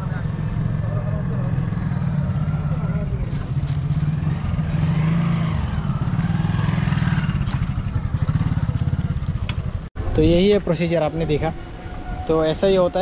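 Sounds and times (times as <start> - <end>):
motorcycle engine running: 0.0 - 9.9.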